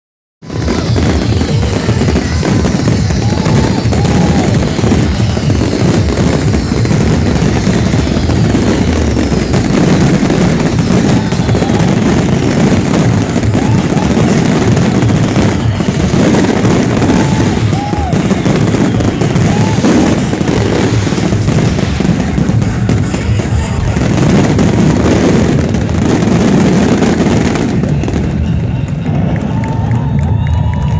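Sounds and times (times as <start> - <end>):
fireworks booms and crackles: 0.4 - 30.8.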